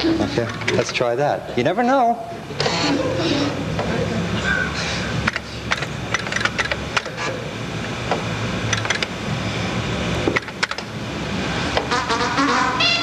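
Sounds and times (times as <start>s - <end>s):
steady low hum: 0.0s - 13.0s
sharp clicks and knocks: 5.3s - 7.2s, 8.1s - 9.1s, 10.2s - 10.9s.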